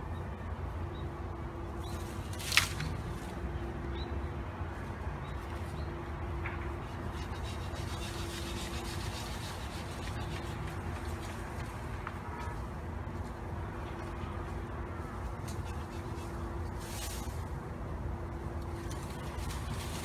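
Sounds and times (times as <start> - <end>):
leaves rustling: 1.7 - 3.6, 4.7 - 20.0
bamboo cracking: 1.9 - 3.3.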